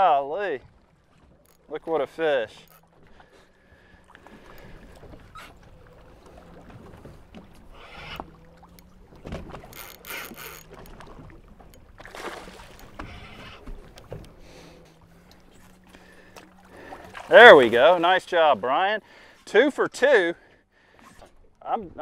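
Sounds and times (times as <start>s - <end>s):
boat engine idling: 0.0s - 22.0s
water sloshing against hull: 0.0s - 22.0s.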